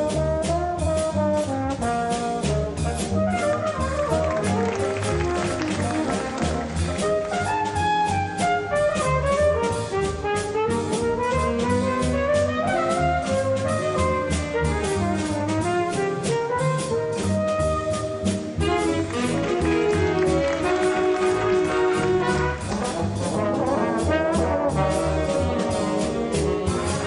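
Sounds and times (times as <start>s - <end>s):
big band playing jazz waltz: 0.0s - 27.0s
flugelhorn solo: 0.5s - 27.0s.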